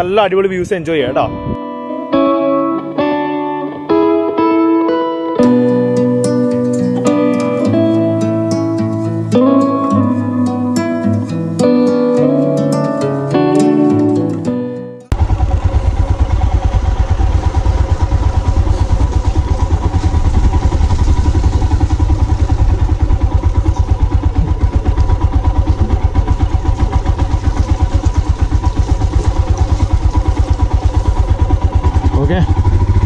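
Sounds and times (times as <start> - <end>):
motorcycle engine running: 15.1 - 33.0.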